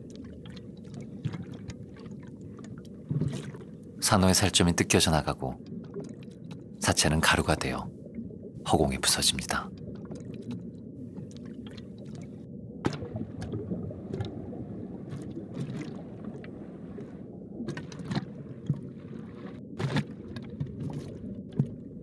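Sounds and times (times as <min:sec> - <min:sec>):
low underwater rumble: 0:00.0 - 0:04.0, 0:09.7 - 0:22.0.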